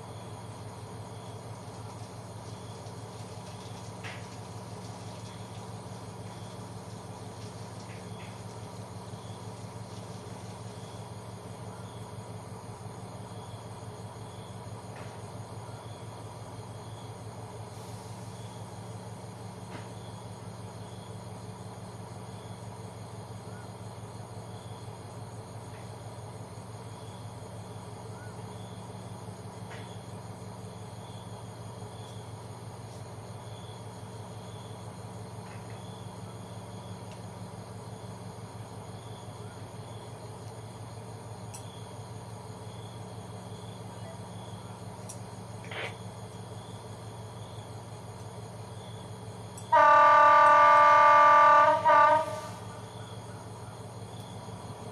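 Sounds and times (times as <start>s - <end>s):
crickets chirping: 0.0s - 54.9s
faint ticks: 1.6s - 8.8s, 41.4s - 41.8s, 45.0s - 46.0s, 49.5s - 49.7s.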